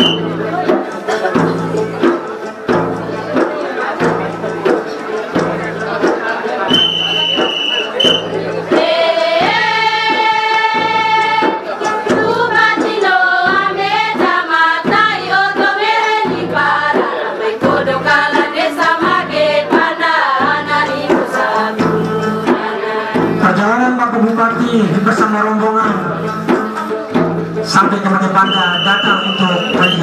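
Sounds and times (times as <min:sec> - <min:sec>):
women singing: 0:08.6 - 0:23.4.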